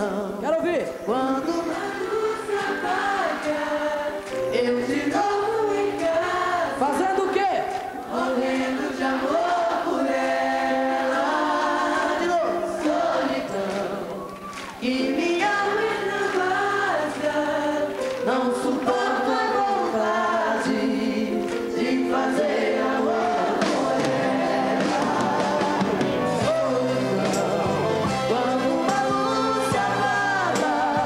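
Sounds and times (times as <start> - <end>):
two men singing a ballad: 0.0 - 7.3, 8.1 - 31.0
band accompaniment: 19.8 - 31.0.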